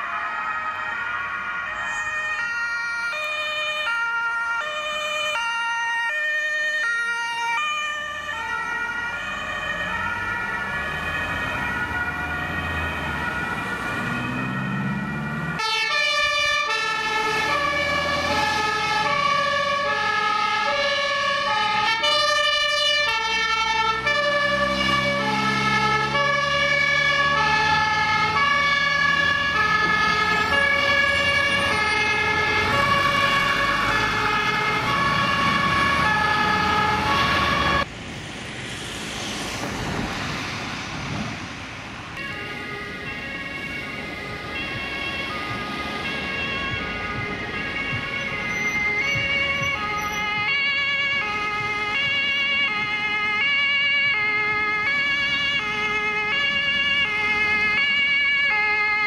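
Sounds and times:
two-tone emergency sirens: 0.0 - 37.9, 39.3 - 59.0
diesel engine revving: 6.9 - 59.0
fire engine two-tone horn: 15.6 - 37.8.

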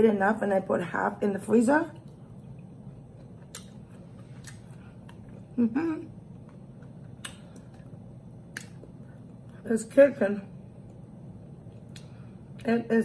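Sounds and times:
person chewing food: 2.0 - 9.6, 11.6 - 12.6
wet mouth clicks: 3.4 - 3.8, 7.2 - 7.8.

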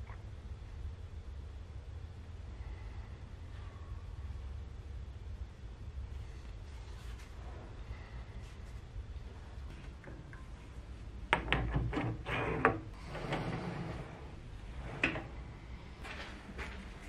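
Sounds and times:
metal clicks and knocks: 11.3 - 12.8
metal sliding rub: 11.7 - 15.6.

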